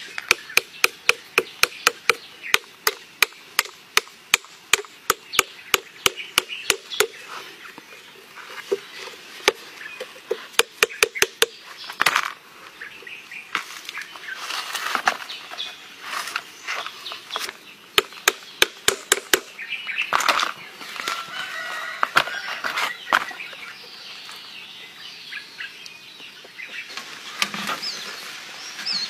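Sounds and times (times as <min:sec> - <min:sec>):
blade chopping coconut husks: 0:00.0 - 0:07.2, 0:10.5 - 0:11.6, 0:18.0 - 0:19.5.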